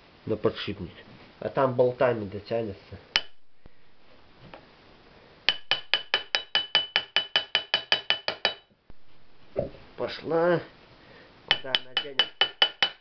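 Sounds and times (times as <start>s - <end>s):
hammer tapping metal: 3.2s - 3.5s, 5.5s - 8.7s, 11.5s - 13.0s.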